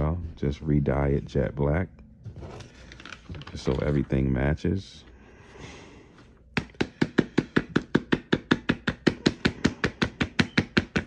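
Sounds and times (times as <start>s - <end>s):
rapid knocking on a sneaker: 6.6s - 11.0s.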